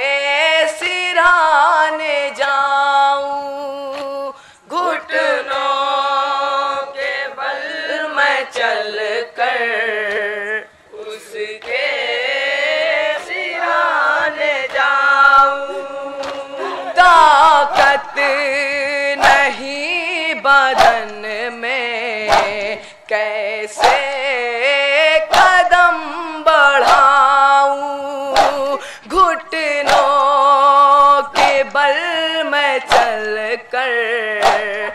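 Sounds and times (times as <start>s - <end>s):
men chanting a lament: 4.0s - 34.9s
chest-beating slaps: 16.2s - 16.5s, 17.4s - 18.4s, 19.2s - 19.8s, 20.7s - 21.4s, 22.2s - 22.9s, 23.8s - 24.3s, 25.3s - 25.9s, 26.8s - 27.2s, 28.3s - 30.4s, 31.3s - 31.8s, 32.8s - 33.4s, 34.4s - 34.9s.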